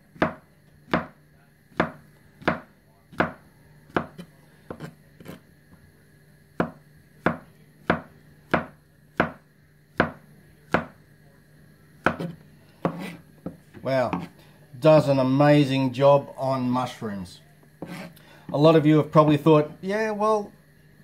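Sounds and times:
knife chopping on cutting board: 0.1s - 5.4s, 6.6s - 11.0s, 12.0s - 14.4s, 17.8s - 18.2s.

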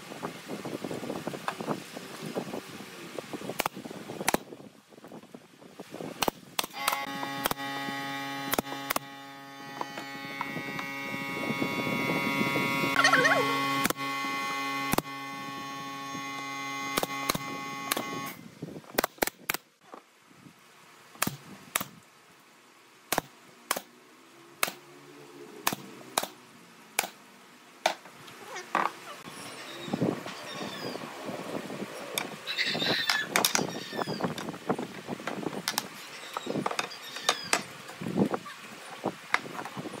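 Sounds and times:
nail gun firing clicks: 6.2s - 7.6s, 16.9s - 18.1s
electrical hum: 6.7s - 18.6s.

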